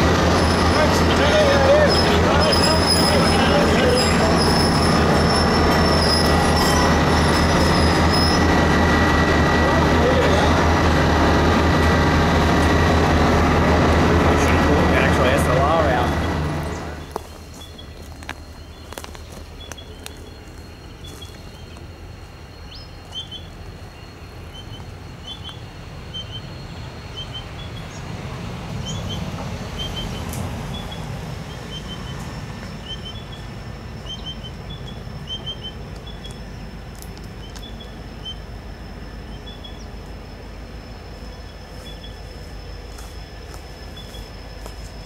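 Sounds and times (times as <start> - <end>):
diesel locomotives rumbling: 0.0 - 45.0
birds chirping: 15.0 - 21.9, 28.8 - 36.7, 40.9 - 44.4
steady thin high tone: 37.8 - 45.0.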